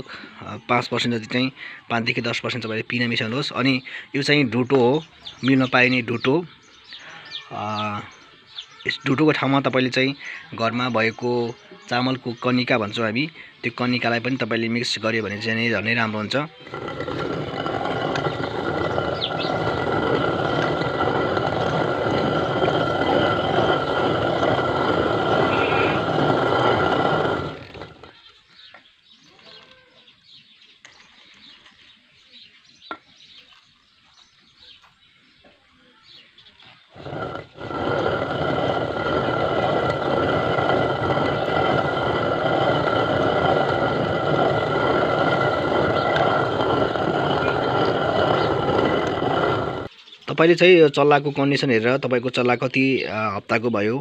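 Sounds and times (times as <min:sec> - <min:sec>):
stone quern grinding: 0:16.2 - 0:28.2, 0:36.9 - 0:49.9.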